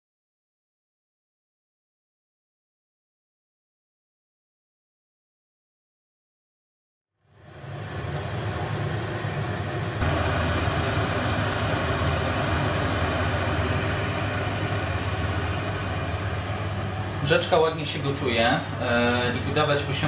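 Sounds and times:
low hum: 0:07.3 - 0:18.0
burner rushing: 0:07.8 - 0:17.5.

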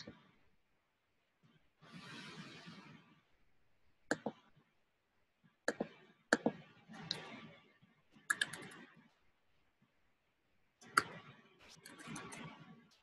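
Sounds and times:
computer mouse clicks: 0:04.1 - 0:04.4, 0:05.7 - 0:07.4, 0:08.2 - 0:08.9, 0:10.8 - 0:12.5
keyboard keystrokes: 0:08.3 - 0:08.8.

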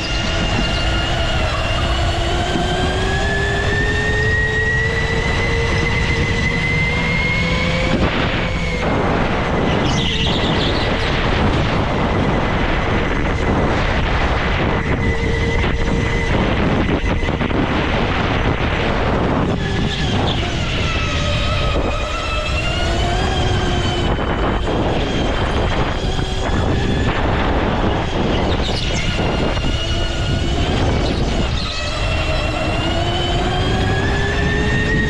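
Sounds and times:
go-kart motor revving: 0:00.0 - 0:13.5, 0:27.7 - 0:35.0
wind and road noise: 0:00.0 - 0:35.0.

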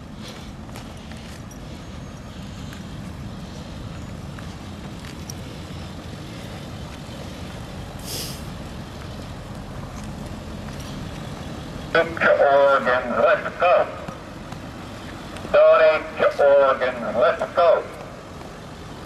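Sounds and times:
street traffic: 0:00.0 - 0:19.0
truck engine rumbling: 0:00.0 - 0:19.0
short hiss: 0:08.0 - 0:08.5.

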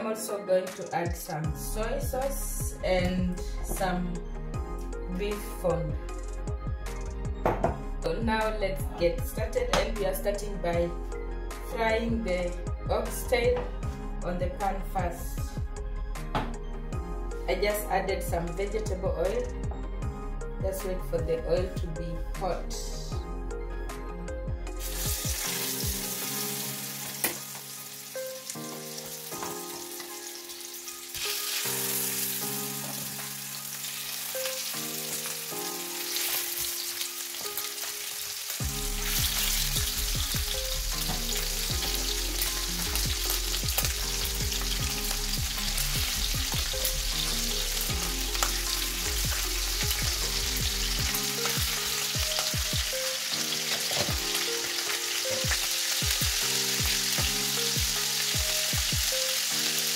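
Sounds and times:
meat sizzling in oil: 0:24.8 - 0:59.9.

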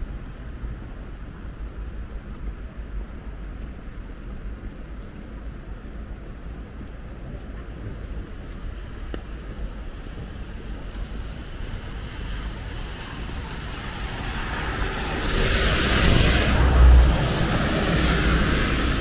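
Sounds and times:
low traffic rumble: 0:00.0 - 0:19.0
vehicle passing on wet road: 0:10.0 - 0:19.0.

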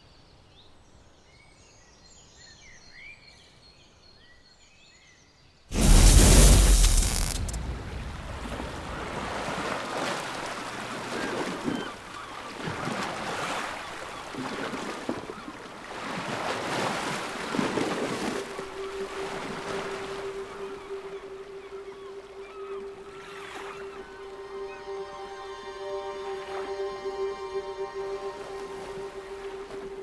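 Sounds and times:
burst of fire: 0:05.7 - 0:09.0
waves washing over rocks: 0:05.7 - 0:12.3
steady low tone: 0:05.8 - 0:09.3, 0:18.5 - 0:23.2, 0:23.8 - 0:30.0.

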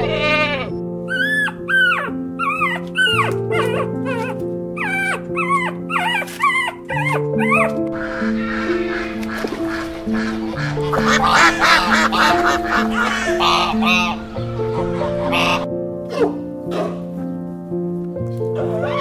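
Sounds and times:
goat bleating: 0:00.0 - 0:00.8
gentle piano music: 0:00.0 - 0:19.0
puppy whimpering and yipping: 0:01.1 - 0:07.8
ducks quacking: 0:07.9 - 0:17.0.

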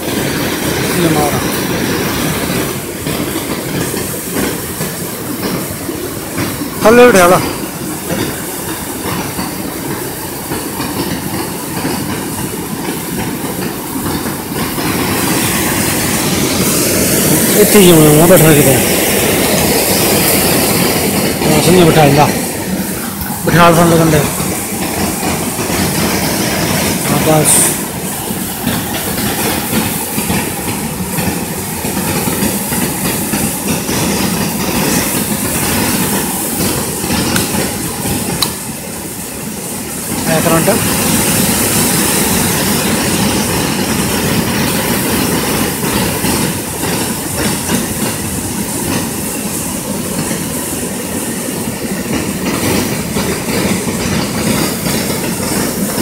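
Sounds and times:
fast-flowing river water: 0:00.0 - 0:12.8, 0:13.5 - 0:29.8.

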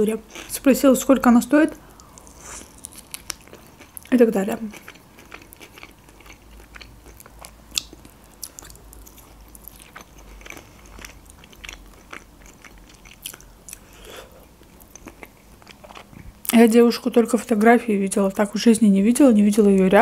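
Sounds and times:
person chewing food: 0:01.8 - 0:16.5.

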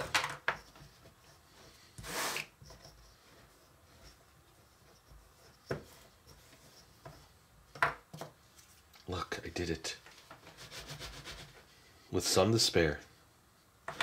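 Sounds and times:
rolling pin rolling over dough: 0:00.0 - 0:08.4.

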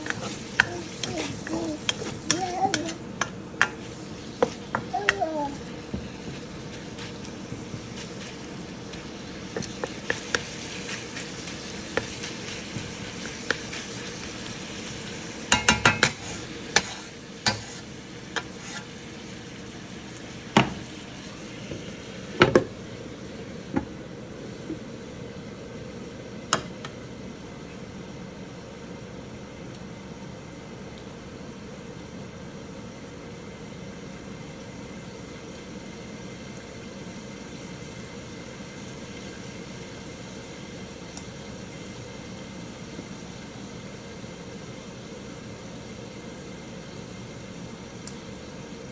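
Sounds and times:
spatula scraping a pan: 0:00.0 - 0:04.8, 0:15.6 - 0:19.0
bacon sizzling in a wok: 0:00.0 - 0:48.9.

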